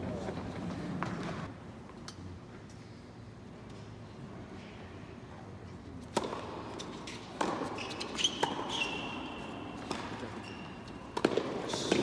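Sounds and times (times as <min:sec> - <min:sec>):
tennis ball struck by racket: 0:06.1 - 0:08.9, 0:09.8 - 0:10.3, 0:11.1 - 0:12.0
shoes squeaking on hard court: 0:06.2 - 0:12.0.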